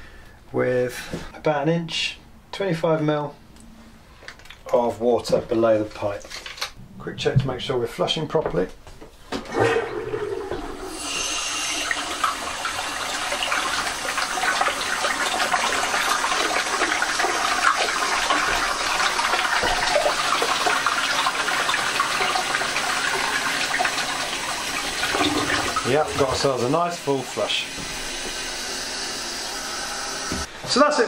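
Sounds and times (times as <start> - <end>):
toilet flushing: 9.4 - 31.0.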